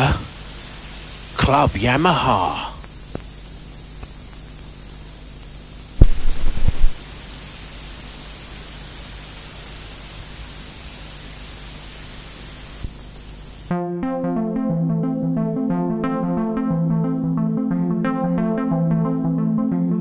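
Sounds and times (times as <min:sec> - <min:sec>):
tape hiss and mains hum: 0:00.0 - 0:13.7
loud crackling pops: 0:02.8 - 0:11.0, 0:11.9 - 0:13.7.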